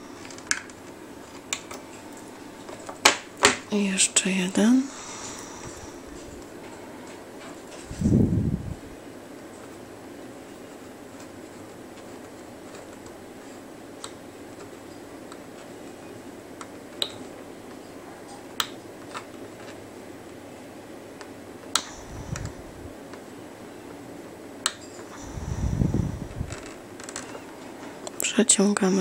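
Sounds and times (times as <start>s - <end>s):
steady background hiss: 0.0s - 29.0s
low rumble: 25.3s - 26.6s.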